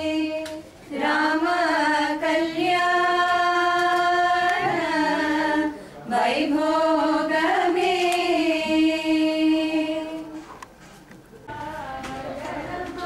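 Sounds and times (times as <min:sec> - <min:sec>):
woman singing unaccompanied: 0:00.0 - 0:05.7, 0:11.5 - 0:13.0.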